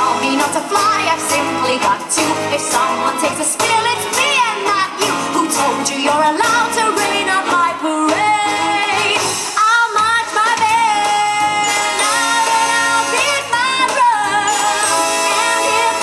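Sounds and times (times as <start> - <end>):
show music backing track: 0.0 - 16.0.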